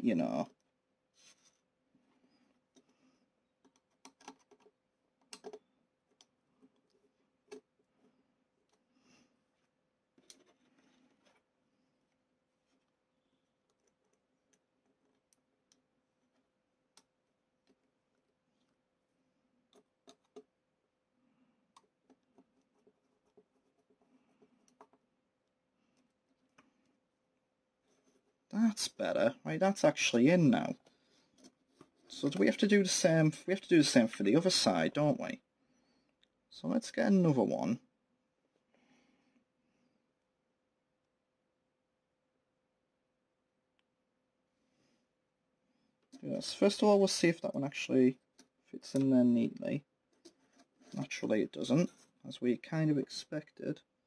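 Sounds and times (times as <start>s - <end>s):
plastic parts being handled: 0.5s - 21.0s, 21.6s - 28.6s, 48.2s - 52.3s.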